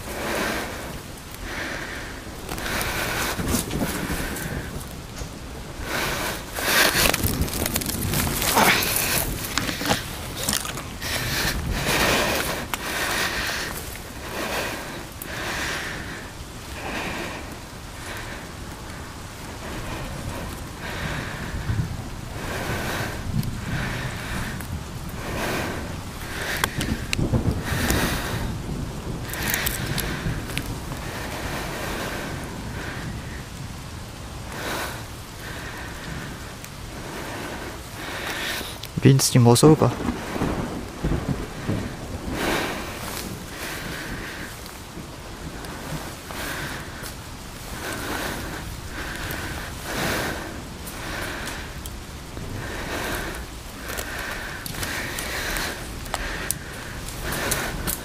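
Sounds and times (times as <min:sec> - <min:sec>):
steady rain falling: 0:00.0 - 0:58.0
footsteps rustling through leaves: 0:06.1 - 0:14.4.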